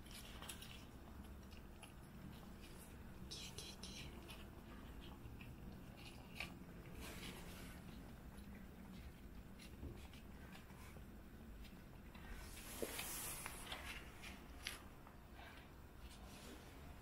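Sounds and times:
cats chewing: 0.0s - 17.0s
hissing rustle: 12.3s - 14.7s.

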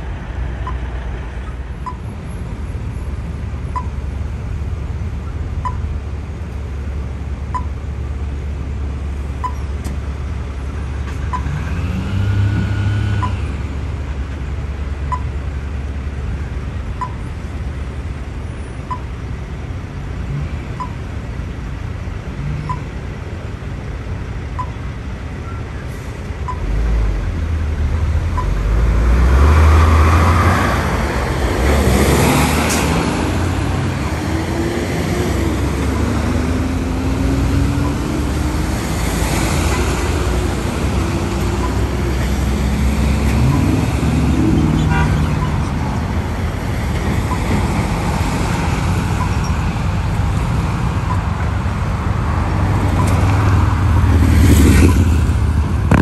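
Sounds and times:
traffic noise: 0.0s - 56.0s
short beeps: 5.6s - 5.9s, 22.6s - 22.9s
heavy vehicle engine revving: 8.6s - 17.0s, 25.8s - 56.0s.

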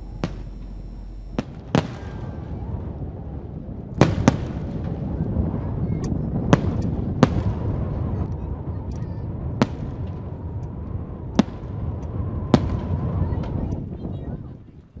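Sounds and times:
firework shells bursting: 0.0s - 2.0s
low rumble: 0.0s - 14.5s.

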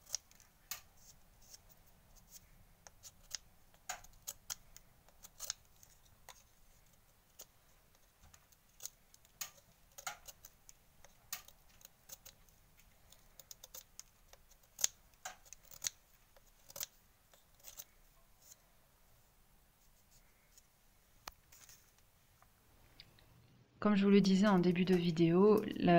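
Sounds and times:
knife cutting dried reed: 0.0s - 1.6s, 2.2s - 6.4s, 8.8s - 12.4s, 13.1s - 18.6s.

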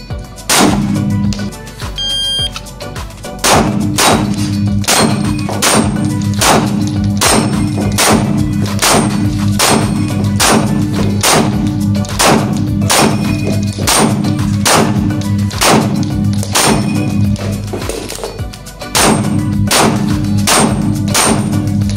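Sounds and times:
pistol shots echoing: 0.5s - 1.1s, 3.4s - 17.2s, 19.0s - 21.7s
steady low drone: 3.2s - 17.7s.

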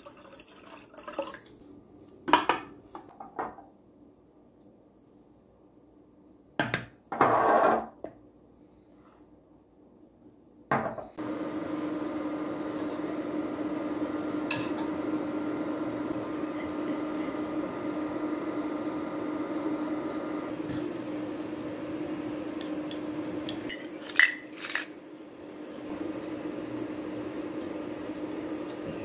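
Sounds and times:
steady low hum: 11.2s - 23.8s
broth boiling and bubbling: 25.1s - 29.0s.

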